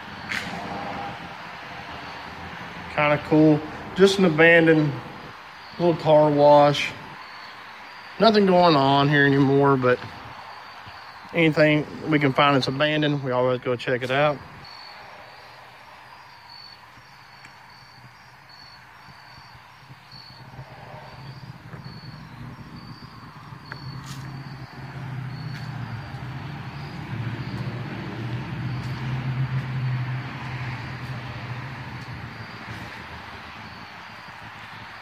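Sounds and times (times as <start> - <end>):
crickets chirping: 0.0 - 35.0.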